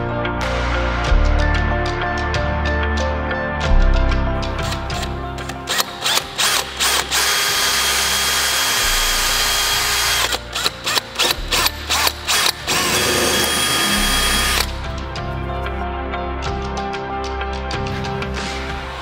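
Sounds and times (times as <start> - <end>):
power drill running: 5.7 - 14.7.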